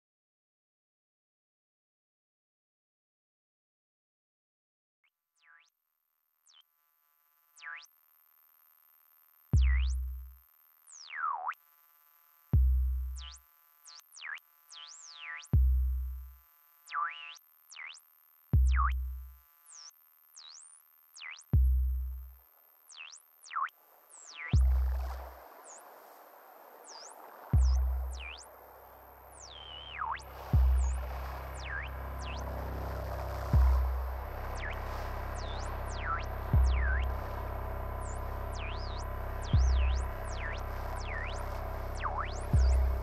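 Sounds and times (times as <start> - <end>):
deep bass kick: 12.6 - 13.2, 15.6 - 16.3, 18.6 - 19.2, 24.6 - 25.0, 27.6 - 28.2, 30.4 - 31.4, 33.2 - 43.0
noise hiss: 24.7 - 43.0
synth blips: 26.9 - 28.5, 29.4 - 43.0
swooping synth tones: 27.5 - 43.0.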